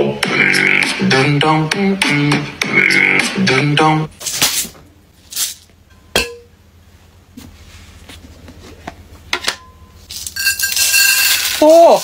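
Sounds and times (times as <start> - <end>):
candy pouring into glass bowl: 10.1 - 12.0.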